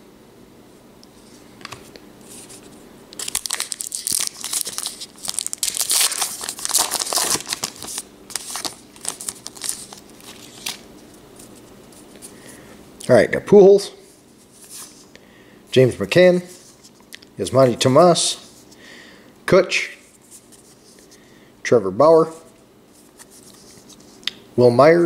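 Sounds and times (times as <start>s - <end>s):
foil wrapper tearing and crinkling: 3.1s - 10.9s.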